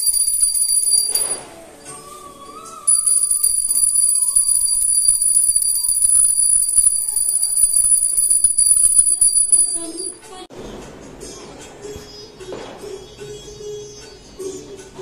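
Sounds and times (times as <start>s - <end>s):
small bell ringing rapidly: 0.0s - 1.4s, 2.9s - 10.2s.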